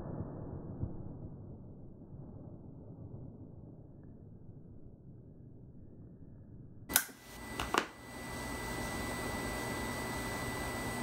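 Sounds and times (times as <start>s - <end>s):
electrical hiss and hum: 4.4s - 11.0s.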